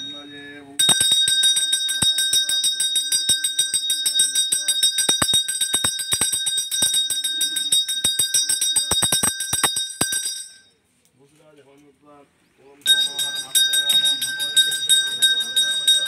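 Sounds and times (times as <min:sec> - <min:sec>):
bell ringing rapidly: 0:00.0 - 0:10.7, 0:12.9 - 0:16.0
low steady tone: 0:00.0 - 0:10.8.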